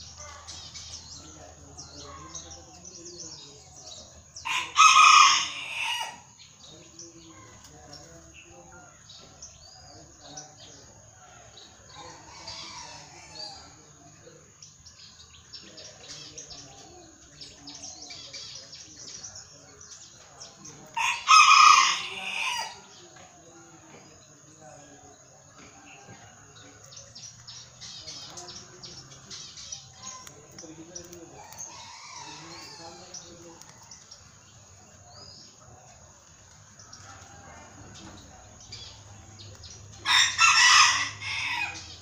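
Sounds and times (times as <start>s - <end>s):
rooster crowing: 4.4s - 6.3s, 12.0s - 13.8s, 21.0s - 22.9s, 31.4s - 33.2s, 40.0s - 42.0s.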